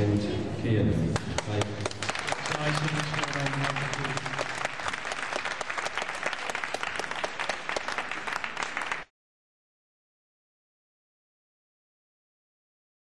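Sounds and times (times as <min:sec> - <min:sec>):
audience applauding: 0:01.2 - 0:09.1.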